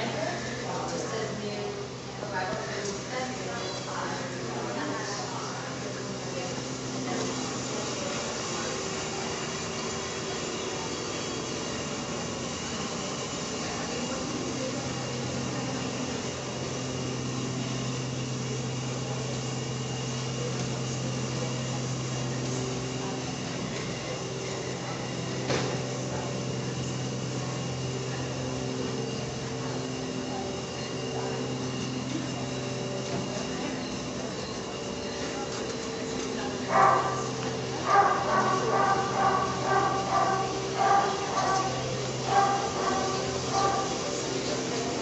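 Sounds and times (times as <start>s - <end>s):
steady mechanical hum: 0.0s - 45.0s.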